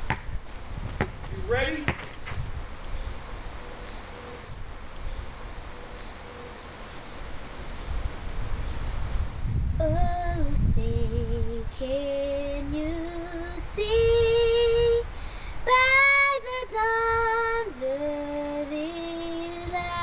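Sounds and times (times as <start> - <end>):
girl singing unaccompanied: 9.6 - 20.0.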